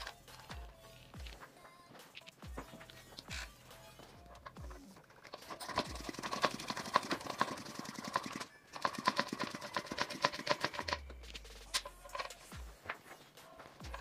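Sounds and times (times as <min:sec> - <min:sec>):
bicycle freewheel ticking: 0:05.6 - 0:11.0.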